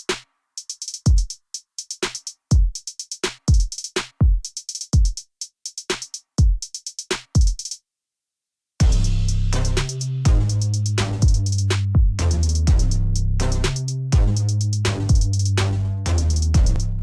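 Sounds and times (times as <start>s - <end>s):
electronic drum-machine beat: 0.0s - 7.8s, 8.8s - 17.0s.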